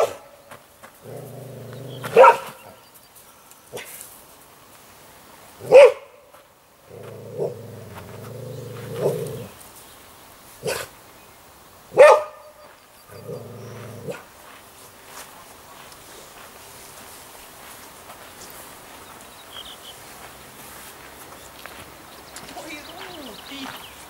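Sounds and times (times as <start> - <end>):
dog barking loudly: 0.0 - 0.3, 2.0 - 2.8, 5.6 - 6.2, 10.6 - 10.9, 11.9 - 12.6
dog growling low: 1.0 - 2.2, 6.9 - 9.6, 13.1 - 14.2.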